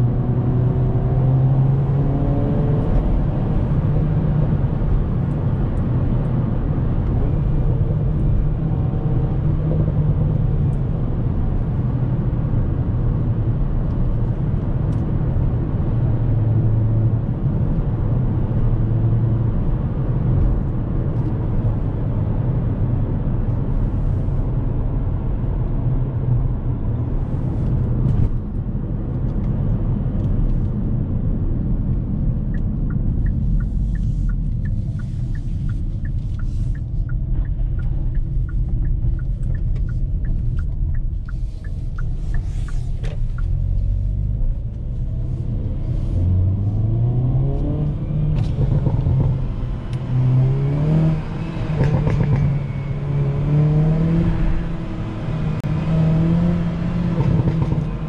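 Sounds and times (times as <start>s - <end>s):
car engine rumbling and revving: 0.0s - 58.0s
regular ticking: 32.9s - 43.6s.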